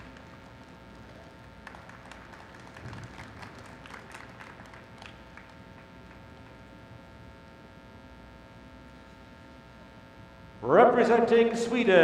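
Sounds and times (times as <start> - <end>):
audience clapping: 0.0 - 6.8
faint steady hum: 0.0 - 12.0.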